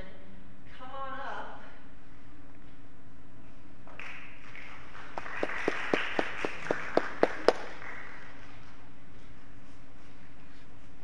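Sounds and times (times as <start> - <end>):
sharp hand claps: 3.9 - 8.4
light applause: 3.9 - 8.7.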